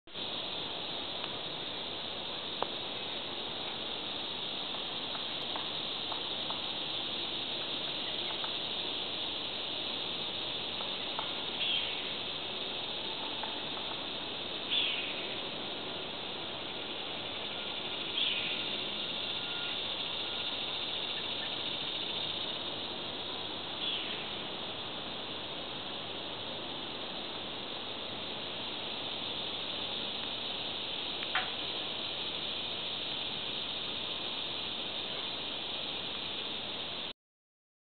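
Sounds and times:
high insect chorus: 0.1 - 37.2
faint ticks: 1.2 - 1.5, 2.5 - 2.8, 4.6 - 6.8, 7.6 - 8.6, 10.7 - 11.8, 13.1 - 14.1, 31.1 - 31.8.

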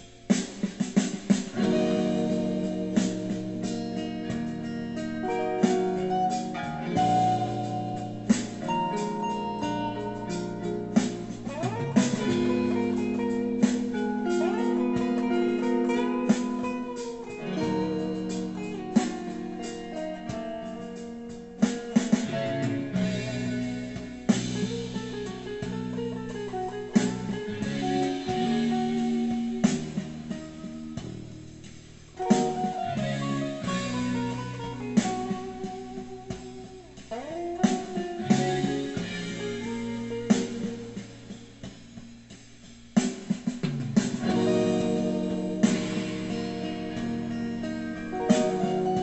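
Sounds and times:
backing track with slow beat: 0.0 - 49.0
electric guitar lead: 1.5 - 42.8, 43.6 - 49.0.

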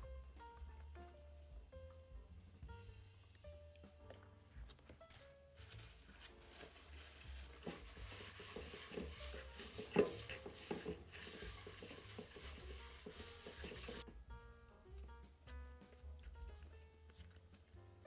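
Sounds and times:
paper towel scrubbing metal bowl: 5.1 - 14.1.

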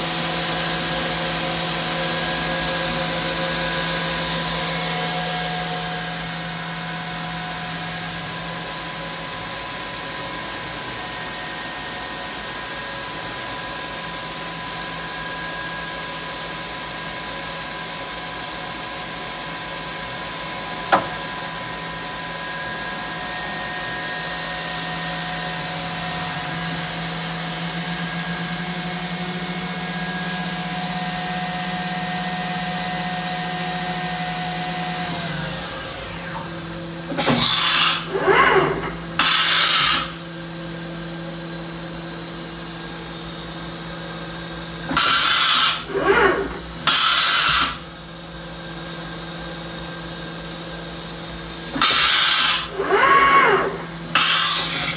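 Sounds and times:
machine hum with motor whine: 0.0 - 54.9
loud air hiss blasts: 39.2 - 40.2, 44.9 - 45.9, 46.8 - 47.8, 51.8 - 52.8.

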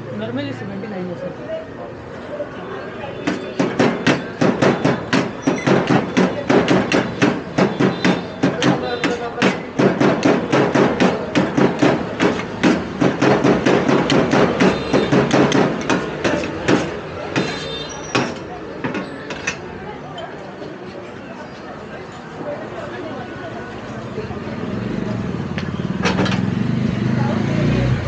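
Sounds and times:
metal spatula chopping on tray: 3.2 - 19.6.

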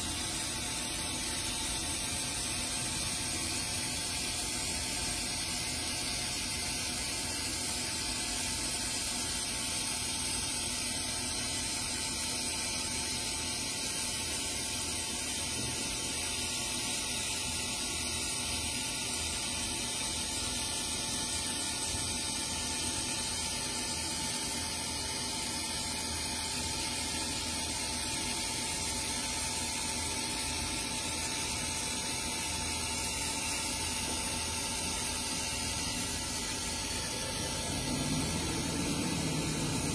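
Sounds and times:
laser machine hiss: 0.0 - 39.9
faint steady hum: 18.6 - 39.9.

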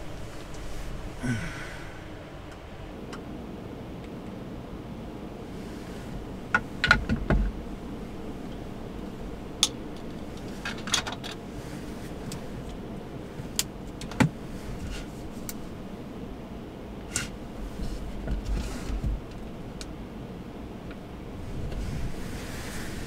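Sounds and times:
steady low hiss: 0.0 - 23.0.

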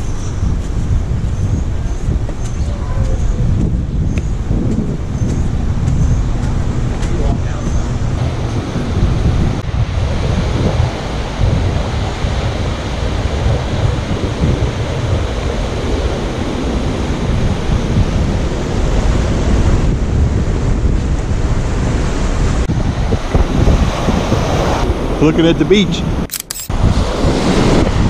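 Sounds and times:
wind buffeting microphone: 0.0 - 28.0
surf breaking on beach: 8.2 - 25.3, 26.8 - 28.0.

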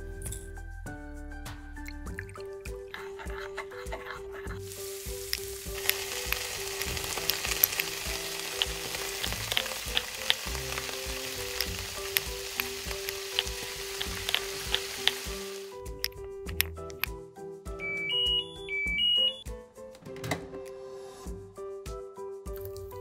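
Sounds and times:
quiet background music: 0.0 - 23.0
chicken sizzling in a wok: 4.6 - 15.8
sharp crackling pops: 4.6 - 17.1.

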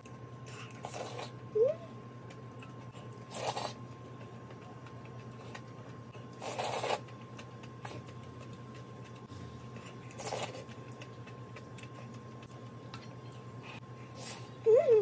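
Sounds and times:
steady low hum: 0.0 - 15.0
slurping noodles: 3.3 - 3.8, 6.4 - 7.1.

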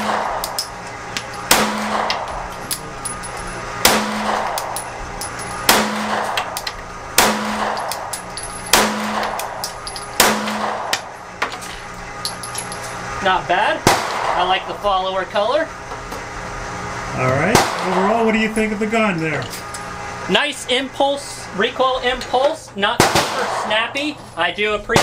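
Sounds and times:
pistol shots with echo: 0.0 - 0.5, 1.5 - 2.3, 3.8 - 4.7, 5.7 - 6.4, 7.2 - 8.0, 8.7 - 9.6, 10.2 - 11.0, 23.0 - 23.7.

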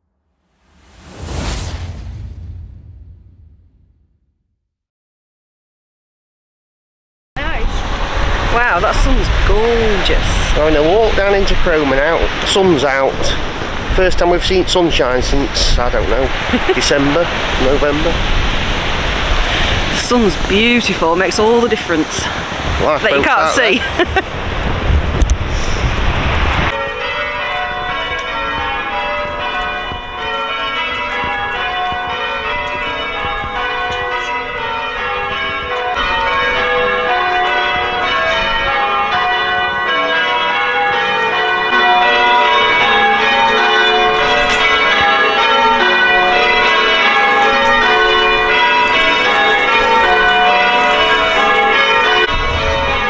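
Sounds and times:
church bells ringing in changes: 26.7 - 53.0.

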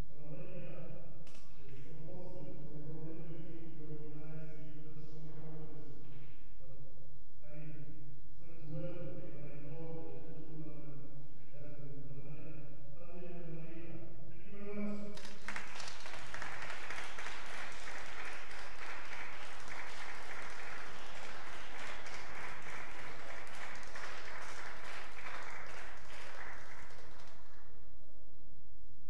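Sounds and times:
man speaking over pa: 8.4 - 15.2
crowd clapping: 15.2 - 27.7.

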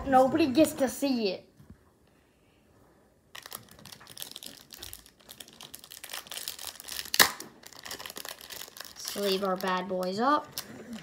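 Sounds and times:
plastic card sleeves crinkling: 3.3 - 11.0.

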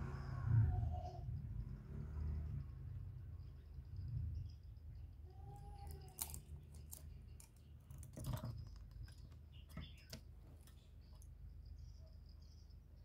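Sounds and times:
dove clicks and rustles: 5.8 - 11.4.

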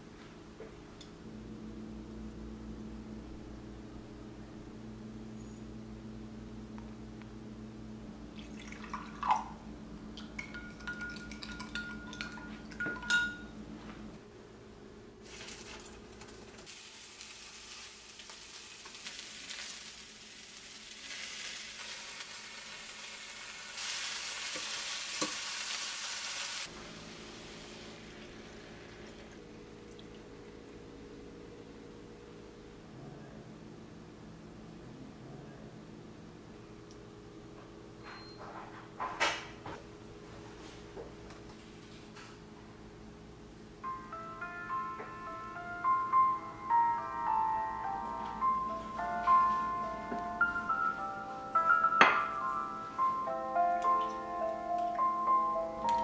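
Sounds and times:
spoon clinking against glass: 10.4 - 13.5
mushrooms sizzling in oil: 16.6 - 28.8.

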